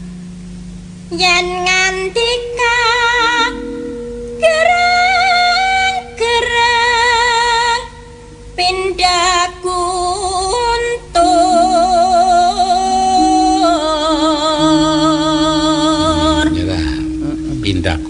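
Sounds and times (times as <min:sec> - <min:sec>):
woman singing with vibrato: 0:01.1 - 0:17.0
gamelan ensemble music: 0:03.3 - 0:06.0, 0:11.3 - 0:18.0.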